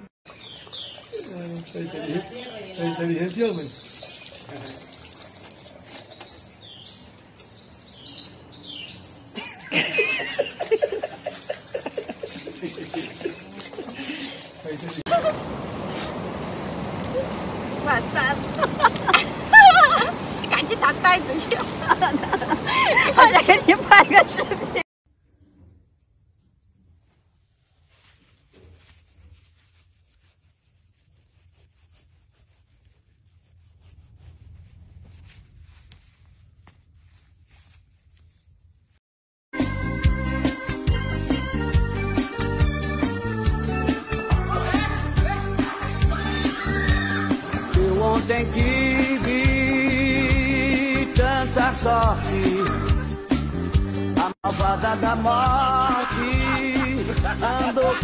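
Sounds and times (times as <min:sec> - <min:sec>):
small birds chirping: 0:00.3 - 0:09.6, 0:10.5 - 0:13.8
person giggling: 0:09.4 - 0:14.0, 0:15.1 - 0:15.4, 0:18.6 - 0:20.2, 0:21.8 - 0:24.8, 0:52.4 - 0:53.7, 0:55.8 - 0:58.0
hand stroking feathers: 0:25.3 - 0:39.0.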